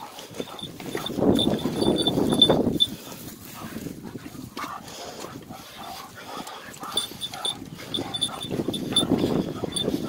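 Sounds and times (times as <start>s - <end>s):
footsteps on loose stones: 0.0s - 5.4s
dogs panting and snuffling: 0.0s - 10.0s.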